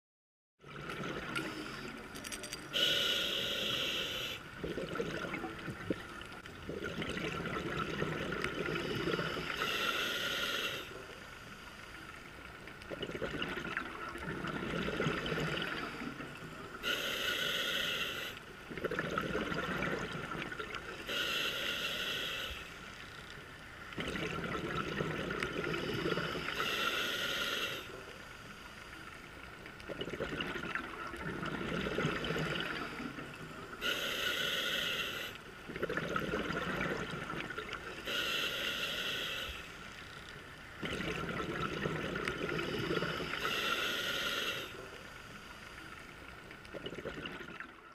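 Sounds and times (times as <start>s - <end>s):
regulator hissing inhalations: 2.7s - 4.5s, 8.7s - 11.6s, 16.8s - 18.4s, 21.0s - 22.8s, 25.7s - 27.9s, 33.8s - 35.4s, 38.0s - 39.9s, 42.5s - 45.1s
bubbling exhalations: 2.7s - 9.7s, 12.9s - 16.3s, 18.7s - 20.8s, 24.0s - 26.6s, 29.9s - 34.1s, 35.7s - 37.7s, 40.8s - 43.6s, 46.7s - 47.8s.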